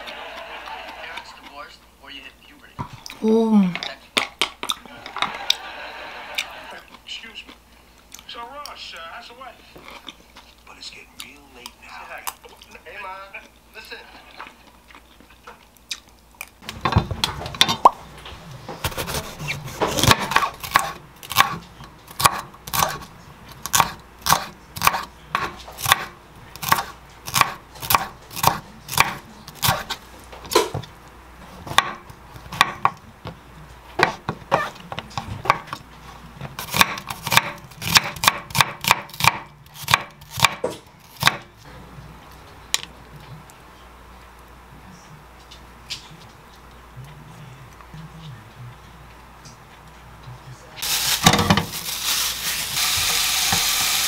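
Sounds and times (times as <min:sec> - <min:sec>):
knife chopping on wooden board: 0:18.8 - 0:23.0, 0:23.7 - 0:30.8, 0:31.7 - 0:33.0, 0:34.0 - 0:35.8, 0:36.6 - 0:41.5.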